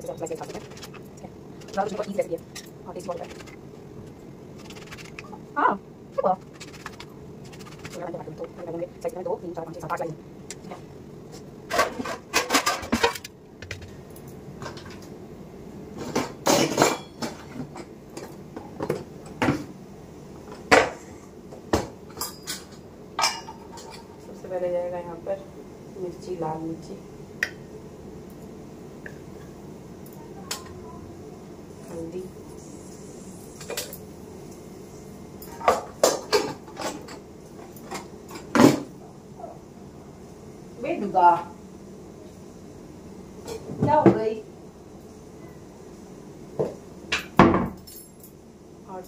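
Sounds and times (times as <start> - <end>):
dishes and utensils clinking: 22.1 - 24.1.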